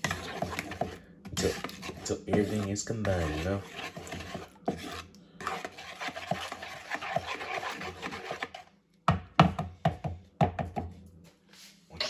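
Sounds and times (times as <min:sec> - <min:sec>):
spoon scraping plastic bowl: 0:00.0 - 0:08.7.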